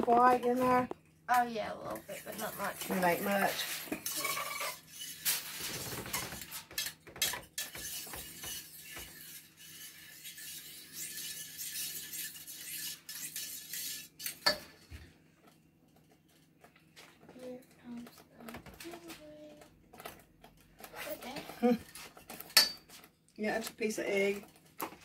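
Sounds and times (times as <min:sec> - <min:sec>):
whisk scraping metal saucepan: 0:01.9 - 0:14.8.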